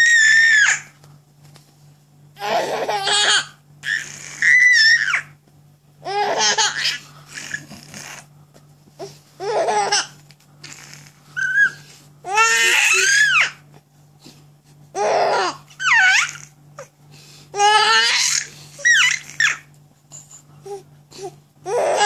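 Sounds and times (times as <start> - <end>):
baby laughing: 2.4 - 5.2, 6.0 - 7.8, 9.4 - 10.2, 17.6 - 19.7.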